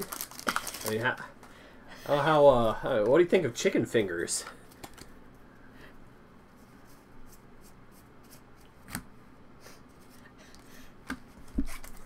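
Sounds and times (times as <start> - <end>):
cards rustling: 0.0 - 1.5, 4.4 - 5.1.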